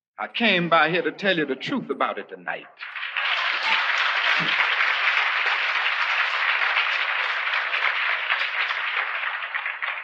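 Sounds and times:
audience applauding: 2.8s - 10.0s.

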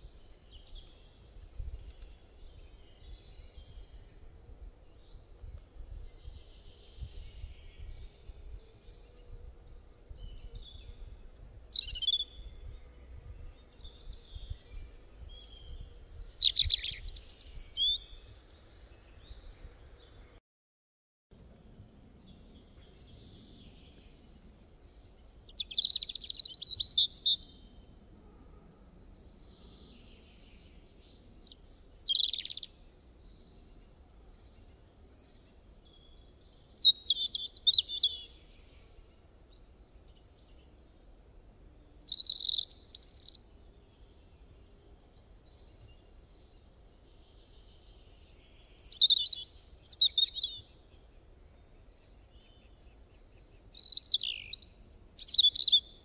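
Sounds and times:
small bird chirping: 10.4s - 18.1s, 22.3s - 27.6s, 31.2s - 39.1s, 41.8s - 43.5s, 45.1s - 56.0s.

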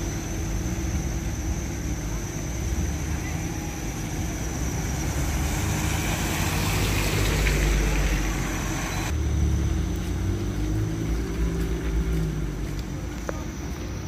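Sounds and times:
car engine and road rumble: 0.0s - 14.0s
tyre hiss on wet road: 5.0s - 9.1s.

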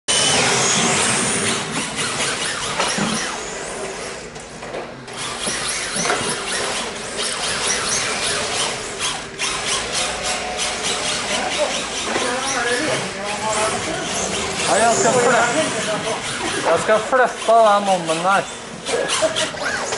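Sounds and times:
toy car motors whining: 0.1s - 19.9s
tyres squealing: 5.2s - 19.9s.

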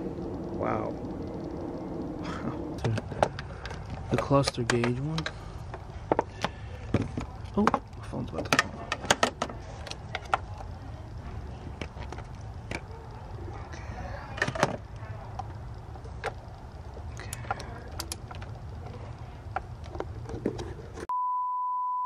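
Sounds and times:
low steady rumble: 0.0s - 21.1s
metallic clicks of hand tools: 17.2s - 18.4s
high-pitched beep tone: 21.1s - 22.0s.

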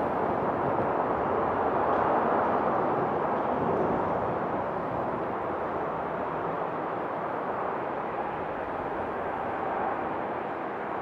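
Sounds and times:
rushing jet noise: 0.0s - 11.0s.

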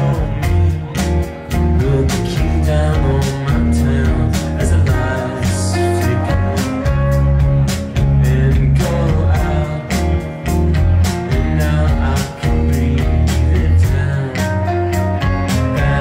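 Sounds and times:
bass guitar: 0.0s - 16.0s
electric guitars: 0.0s - 16.0s
steady drum beat: 0.0s - 16.0s.

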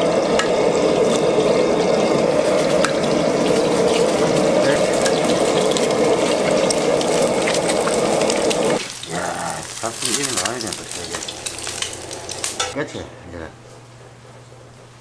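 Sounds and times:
eggs crackling in oil: 0.0s - 12.8s
gas burner rushing: 0.0s - 15.0s.

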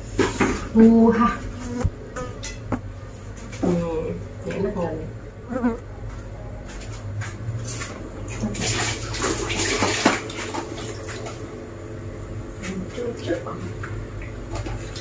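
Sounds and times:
low steady hum: 0.0s - 15.0s
people eating with hands: 12.6s - 15.0s.

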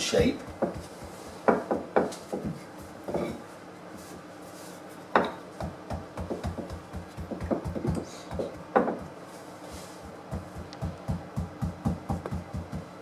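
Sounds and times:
rolling pin knocking on wood: 0.2s - 3.3s, 5.1s - 9.2s, 10.1s - 13.0s.

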